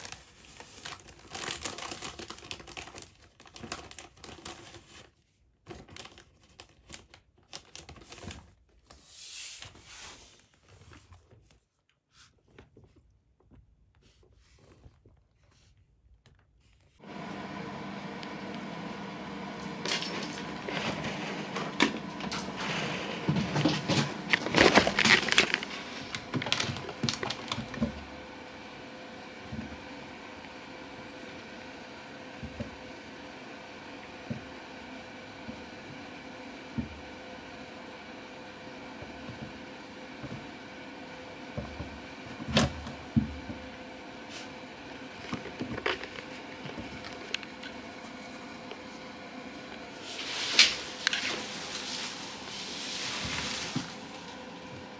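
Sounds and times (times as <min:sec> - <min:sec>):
plastic bag crackling: 0:00.0 - 0:05.0, 0:23.6 - 0:28.2, 0:49.8 - 0:54.3
room noise: 0:16.6 - 0:54.9.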